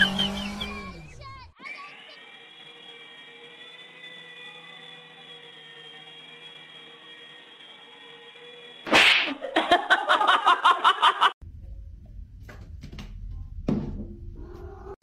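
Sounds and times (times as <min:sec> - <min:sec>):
toy helicopter motor whirring: 0:00.0 - 0:08.9
rapid sharp pulses: 0:00.0 - 0:09.4.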